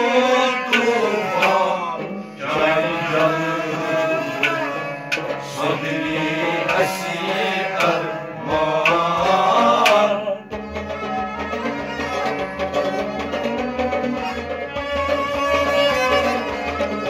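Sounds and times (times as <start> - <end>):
man singing: 0.0 - 4.8, 5.4 - 10.5
harmonium chords: 0.0 - 17.0
clay pot drum rhythm: 0.4 - 17.0.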